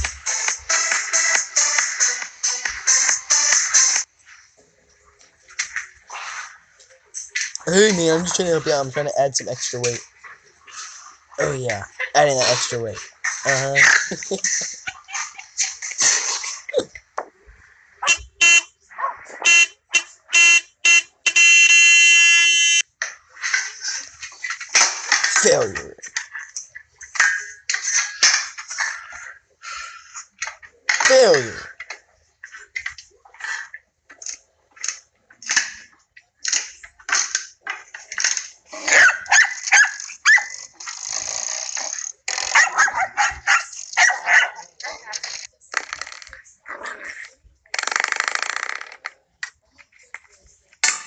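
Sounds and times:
car horn honking: 0:18.0 - 0:18.7, 0:19.5 - 0:22.8.

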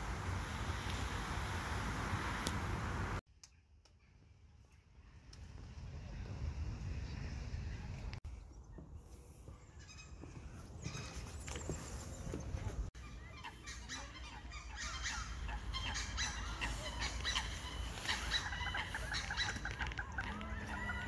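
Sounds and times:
geese honking: 0:13.2 - 0:21.0.

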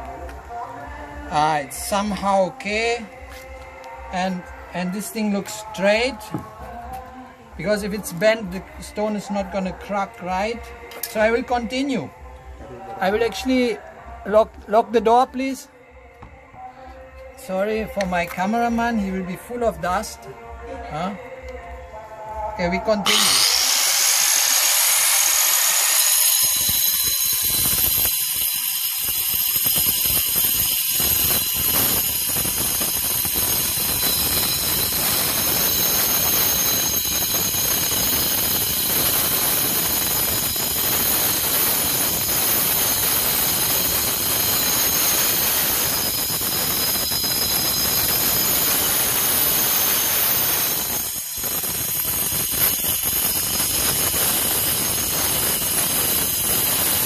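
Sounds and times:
grinder cutting stone: 0:23.0 - 0:57.0.

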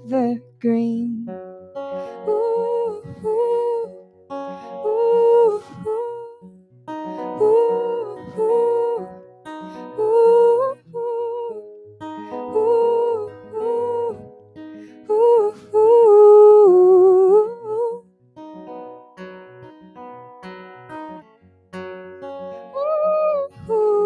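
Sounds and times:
woman singing wordless melody: 0:00.0 - 0:01.3, 0:02.0 - 0:06.5, 0:07.1 - 0:18.0, 0:22.8 - 0:24.0
strummed acoustic guitar: 0:00.0 - 0:24.0.

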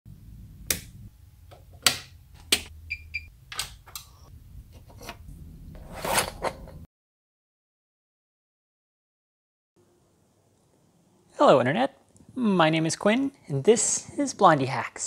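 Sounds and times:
toggle switch clicks: 0:00.7 - 0:00.9, 0:01.5 - 0:02.7.

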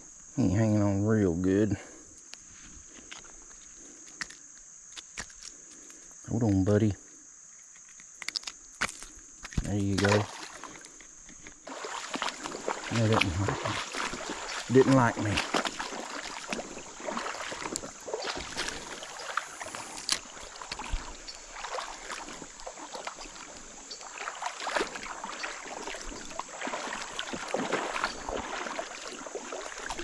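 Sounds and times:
steady high-pitched hiss: 0:00.0 - 0:30.0
water sloshing and splashing: 0:08.3 - 0:30.0.

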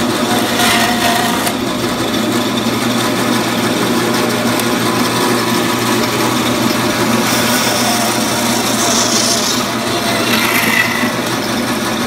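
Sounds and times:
band saw cutting through bone: 0:00.0 - 0:02.0, 0:04.9 - 0:12.0.

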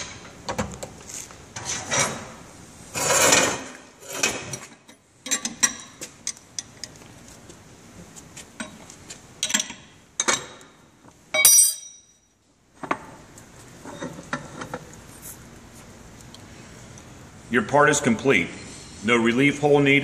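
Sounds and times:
steel parts clinking: 0:11.3 - 0:12.2.

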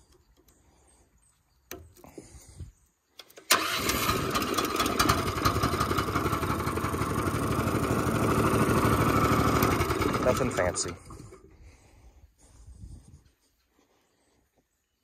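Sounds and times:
small engine starting and running: 0:03.2 - 0:11.5.

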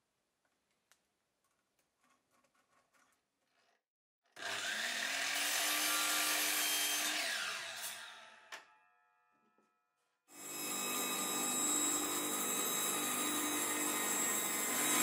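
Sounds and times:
mitre saw cutting: 0:04.3 - 0:08.5, 0:10.3 - 0:15.0
power tool running: 0:04.4 - 0:08.2, 0:10.4 - 0:15.0.

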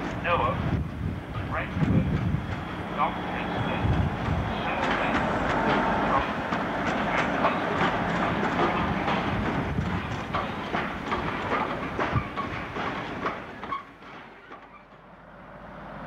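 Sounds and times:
diesel locomotive passing: 0:00.0 - 0:16.0
wheels clattering over rail joints: 0:03.7 - 0:15.2.

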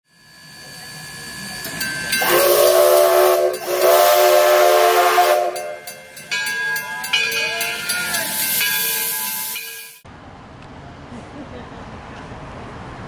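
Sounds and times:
steam hissing: 0:00.4 - 0:06.3, 0:07.7 - 0:10.0
steam locomotive whistle: 0:00.6 - 0:06.0.

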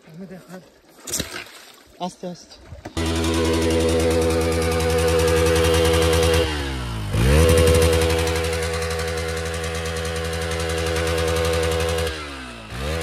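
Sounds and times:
motorcycle engine running: 0:02.9 - 0:13.0.

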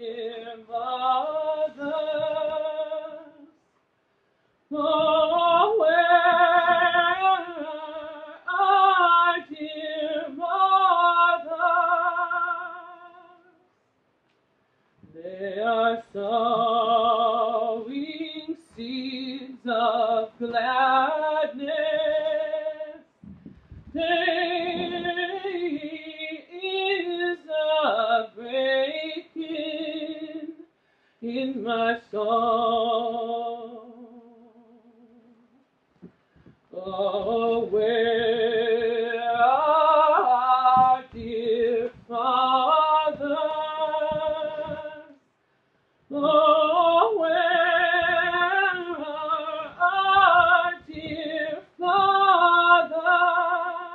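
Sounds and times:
person singing unaccompanied: 0:00.0 - 0:03.6, 0:04.7 - 0:13.6, 0:15.0 - 0:35.6, 0:36.7 - 0:45.2, 0:46.1 - 0:53.9
singer breathing: 0:30.7 - 0:31.2.

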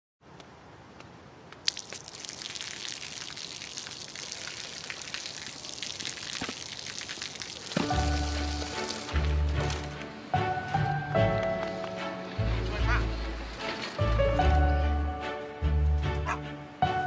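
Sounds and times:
water splashing onto pavement: 0:01.6 - 0:10.0.

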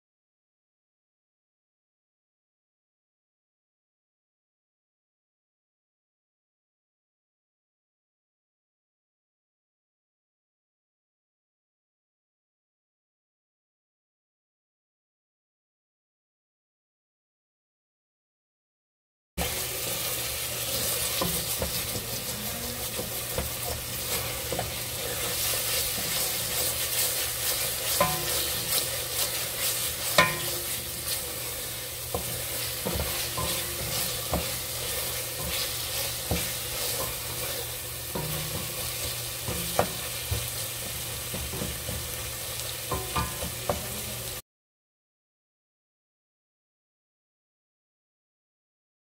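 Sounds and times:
onions sizzling in a pot: 0:19.4 - 0:44.4
spatula scraping a pot: 0:19.4 - 0:44.4
spatula knocking against a pot: 0:27.8 - 0:29.4, 0:30.0 - 0:31.2, 0:32.1 - 0:42.1, 0:42.9 - 0:44.0.

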